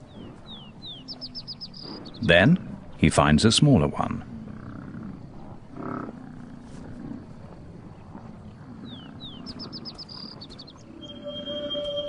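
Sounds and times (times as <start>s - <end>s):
bison grunting and bawling: 4.2s - 11.2s.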